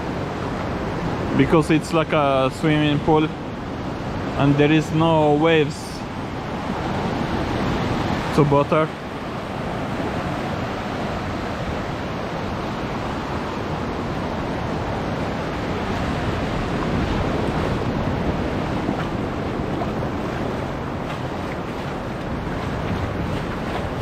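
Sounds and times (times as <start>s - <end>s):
sea surf rushing: 0.0s - 24.0s
wind buffeting microphone: 9.0s - 24.0s.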